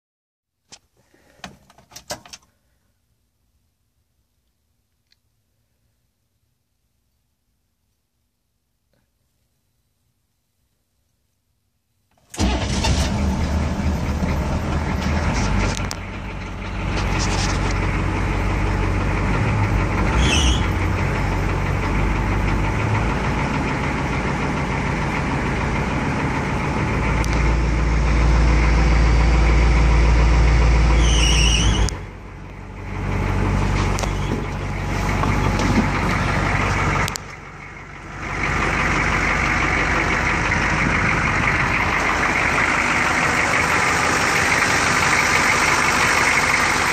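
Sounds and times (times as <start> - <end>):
diesel engine idling: 12.4 - 46.9.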